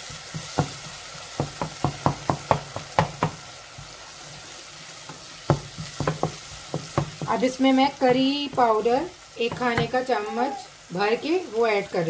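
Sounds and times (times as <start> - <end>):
frying sizzle: 0.0 - 12.0
spatula tapping metal saucepan: 5.1 - 7.4, 8.0 - 10.0.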